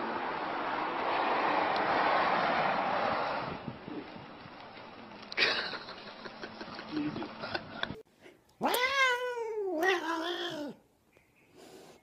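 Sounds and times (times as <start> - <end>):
outdoor noise: 0.0 - 12.0
cat meowing: 8.6 - 10.8.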